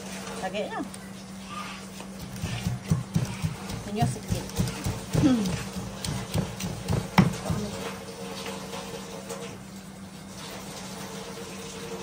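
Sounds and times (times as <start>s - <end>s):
steady hum: 0.0s - 8.3s
water running from a tap: 10.3s - 12.0s.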